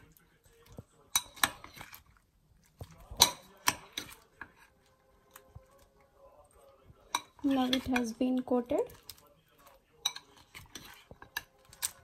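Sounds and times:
metal spoon clinking on glass bowl: 0:01.1 - 0:01.8, 0:03.1 - 0:04.5, 0:07.1 - 0:08.2, 0:10.0 - 0:12.0.

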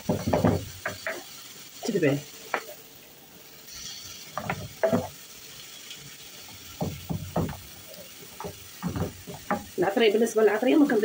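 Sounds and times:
wooden spoon scraping frying pan: 0:00.0 - 0:01.4, 0:03.7 - 0:05.4, 0:06.0 - 0:09.9
faint sizzle: 0:00.0 - 0:11.0.

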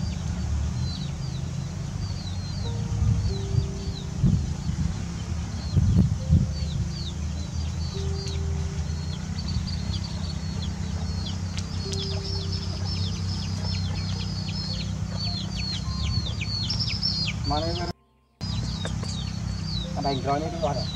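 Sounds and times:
low rumble: 0:00.0 - 0:20.2
chicks peeping: 0:00.0 - 0:20.9
low thumps: 0:02.7 - 0:17.4.

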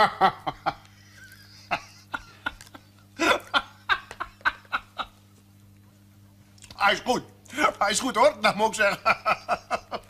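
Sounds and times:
man laughing: 0:00.0 - 0:05.2, 0:08.8 - 0:10.0.

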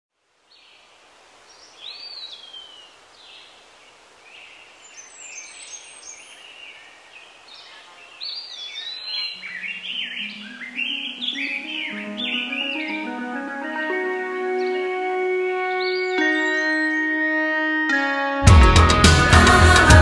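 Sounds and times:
steady outdoor hiss: 0:00.1 - 0:17.2
birds whistling calls: 0:04.8 - 0:17.2
low instrumental music: 0:10.4 - 0:20.0.

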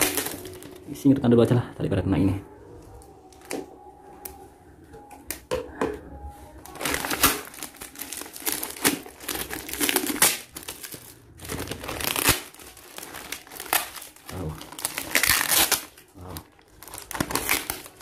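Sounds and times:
plastic packaging crinkling: 0:00.0 - 0:01.0, 0:06.5 - 0:18.0.

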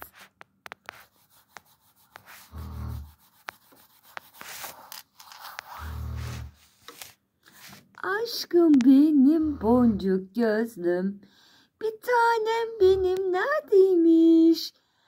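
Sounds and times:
rubbing on phone microphone: 0:00.0 - 0:08.0.

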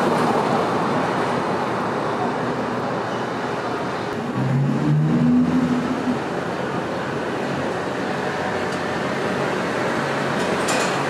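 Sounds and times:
subway train rumbling: 0:00.0 - 0:11.0
brief held tone: 0:05.1 - 0:06.7.

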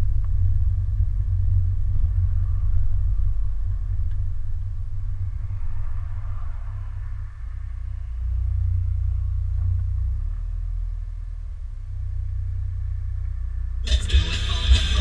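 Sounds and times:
vehicle engine idling: 0:00.0 - 0:15.0
music: 0:13.8 - 0:15.0.

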